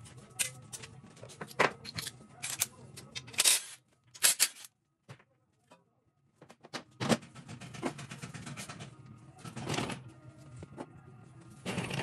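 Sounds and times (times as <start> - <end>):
tools and metal parts clinking: 1.4 - 4.7.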